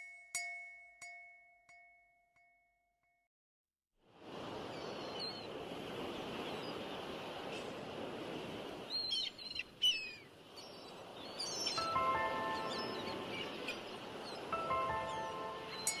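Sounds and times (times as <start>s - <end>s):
birds chirping: 8.8s - 16.0s.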